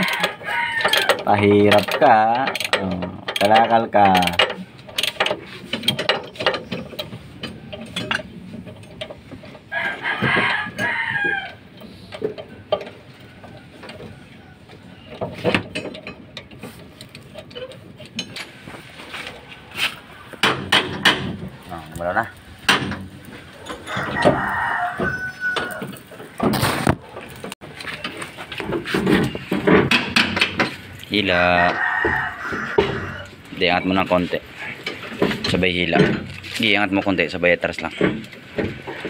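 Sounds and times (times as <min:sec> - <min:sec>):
rooster crowing: 0:00.0 - 0:01.2, 0:09.7 - 0:11.6, 0:23.6 - 0:26.0, 0:31.2 - 0:33.4
metal tools knocking on bolts: 0:00.0 - 0:18.5, 0:20.4 - 0:26.4, 0:27.4 - 0:39.0.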